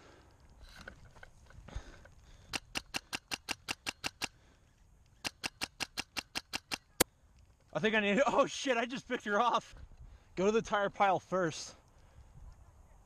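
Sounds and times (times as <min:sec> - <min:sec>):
scope turret clicks: 0:05.1 - 0:07.1.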